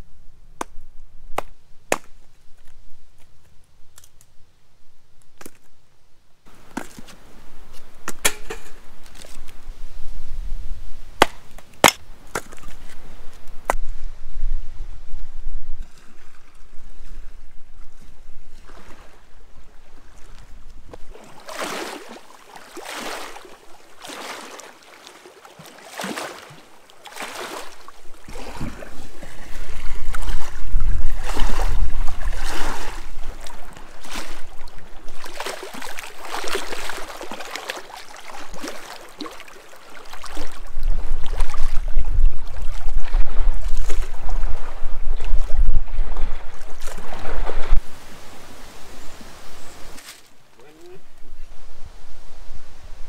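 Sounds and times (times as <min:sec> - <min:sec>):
wind on microphone: 0:06.5 - 0:21.3, 0:27.6 - 0:35.4, 0:40.2 - 0:50.0, 0:51.0 - 0:53.0
paddle splashing water: 0:15.8 - 0:51.0.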